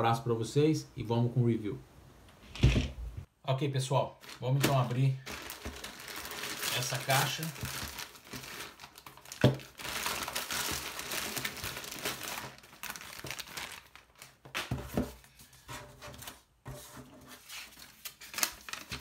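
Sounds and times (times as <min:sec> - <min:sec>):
plastic mailer bag crinkling and tearing: 0:04.2 - 0:14.8, 0:17.7 - 0:19.0.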